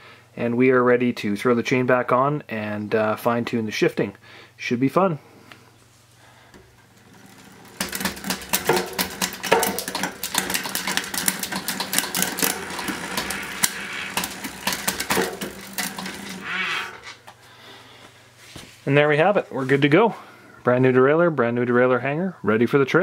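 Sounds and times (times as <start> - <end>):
bicycle chain clicking rattle: 6.6 - 17.1.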